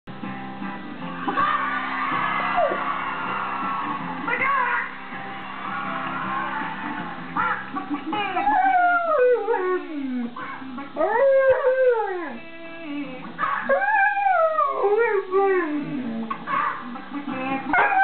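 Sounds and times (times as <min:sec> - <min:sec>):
music playing: 0:00.1 - 0:18.0
dog howling: 0:02.1 - 0:03.0, 0:06.8 - 0:12.4, 0:13.0 - 0:16.9, 0:17.7 - 0:18.0.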